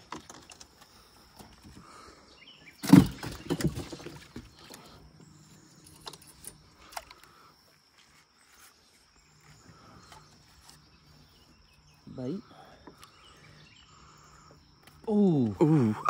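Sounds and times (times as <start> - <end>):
fish thudding in boat: 2.8 - 4.6.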